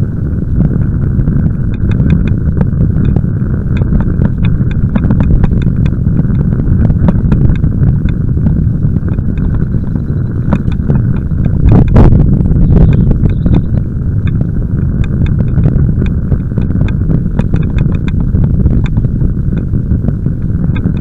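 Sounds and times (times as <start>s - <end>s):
wind rumble on microphone: 0.0s - 21.0s
small clicks and rattles: 1.7s - 21.0s.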